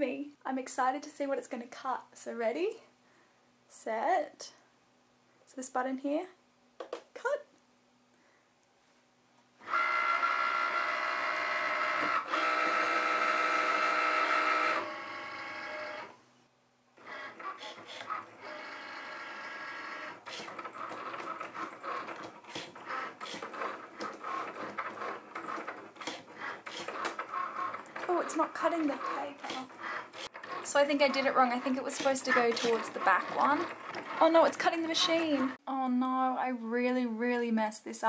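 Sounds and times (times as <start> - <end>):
cutting machine motor whining: 9.7 - 16.1, 17.0 - 35.6
stop-start machine whirs: 9.7 - 16.1, 17.1 - 35.6.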